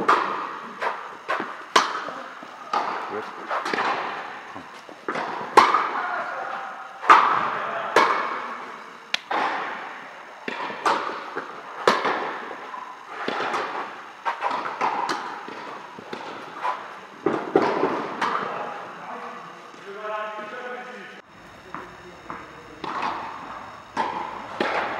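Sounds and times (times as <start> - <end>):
tennis ball hits echoing: 0.0 - 0.5, 1.3 - 2.1, 2.7 - 6.0, 7.0 - 8.4, 21.6 - 24.9.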